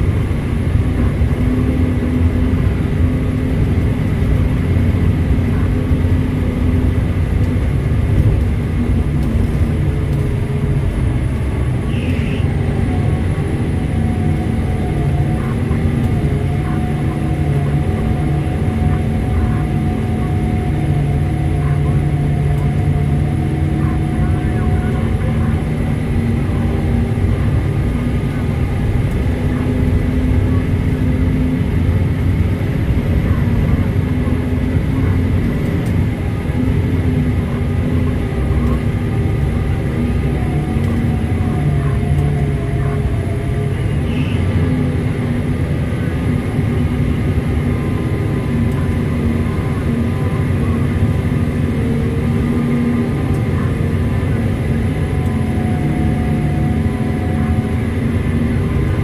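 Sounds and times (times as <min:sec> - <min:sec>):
diesel engine drone: 0:00.0 - 0:59.0.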